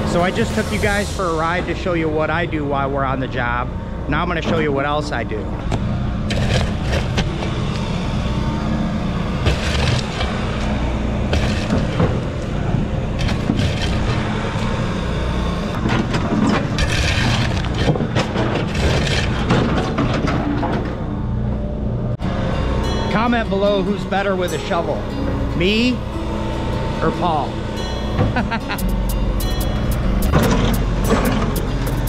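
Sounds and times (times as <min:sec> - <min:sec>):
engine running: 0:00.0 - 0:32.0.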